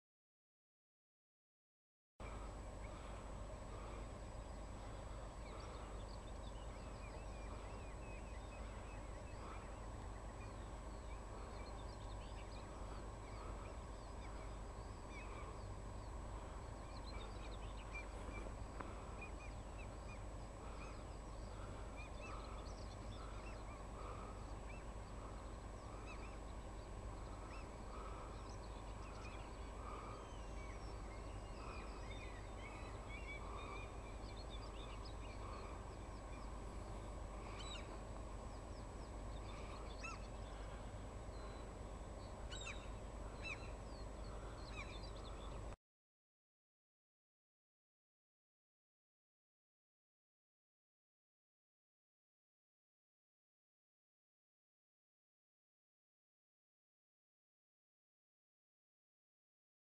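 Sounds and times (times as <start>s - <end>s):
steady low rumble: 2.2s - 45.8s.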